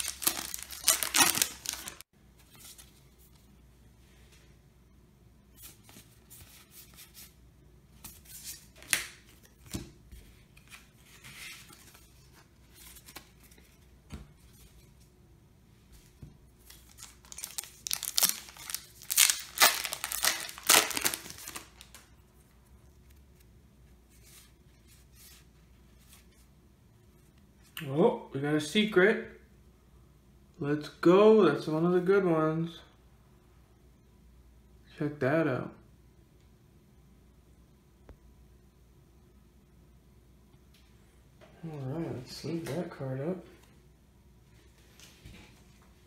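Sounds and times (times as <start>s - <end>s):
foil wrapper crinkling and tearing: 0.0s - 2.0s, 16.7s - 22.1s.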